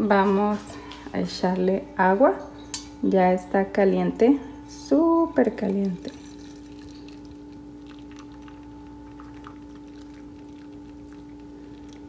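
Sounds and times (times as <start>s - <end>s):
steady hum: 0.0s - 12.0s
water pouring into mug: 5.7s - 12.0s.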